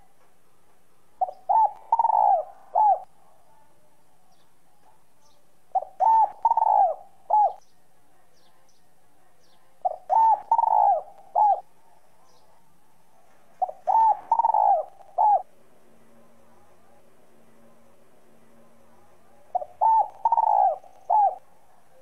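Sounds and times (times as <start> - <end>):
dove cooing: 1.2 - 3.1, 5.7 - 7.6, 9.8 - 11.7, 13.5 - 15.5, 19.5 - 22.0
small birds chirping: 1.2 - 15.5, 19.0 - 22.0.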